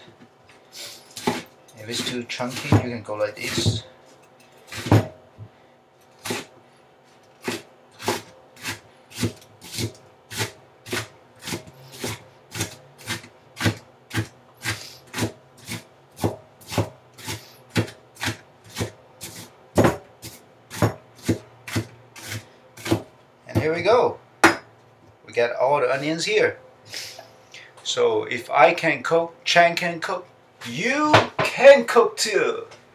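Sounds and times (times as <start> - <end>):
knife chopping on cutting board: 1.2 - 3.8, 4.7 - 5.2, 6.2 - 6.5, 7.4 - 23.8.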